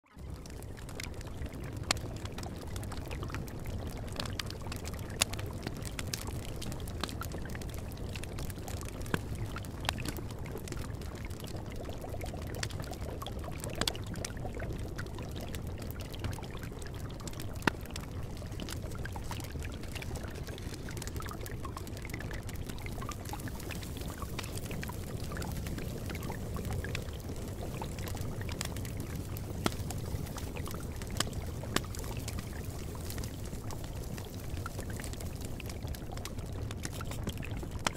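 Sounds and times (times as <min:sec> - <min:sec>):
running water: 0:15.5 - 0:37.9.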